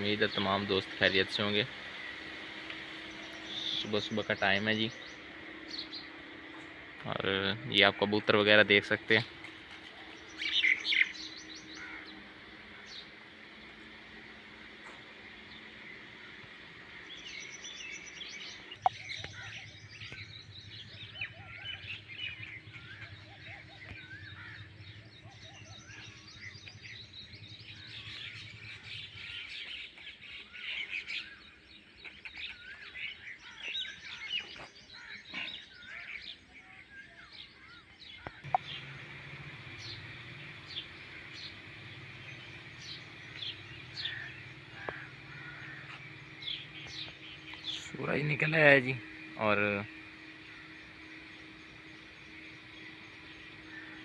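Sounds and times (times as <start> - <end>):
low steady hum: 0.0 - 31.8, 37.6 - 54.0
birds chirping: 0.0 - 54.0
crows cawing: 9.4 - 13.2, 19.2 - 19.6, 22.8 - 24.8, 34.9 - 36.2, 38.2 - 47.8, 49.0 - 54.0.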